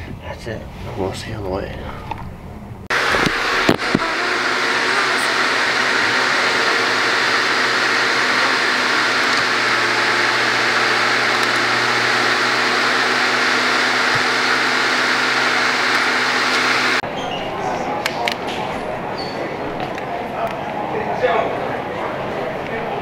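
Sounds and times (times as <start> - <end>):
loud mechanical whirring: 2.9 - 17.0.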